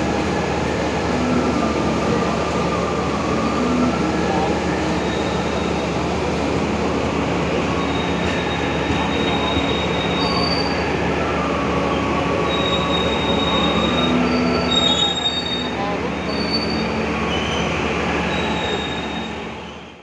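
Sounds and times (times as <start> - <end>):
train wheels rumbling on rails: 0.0 - 20.0
high wheel squeals: 7.7 - 11.0, 12.4 - 20.0.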